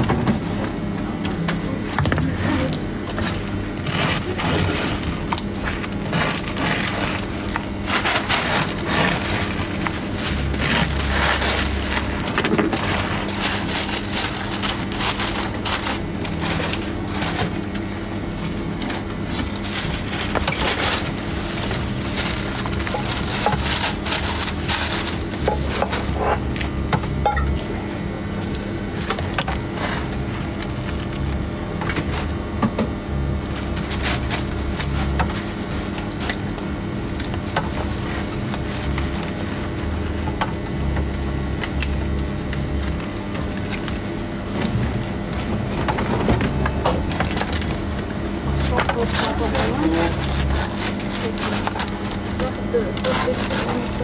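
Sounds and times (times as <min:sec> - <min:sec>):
knife sawing crusty bread: 0:53.0 - 0:54.0.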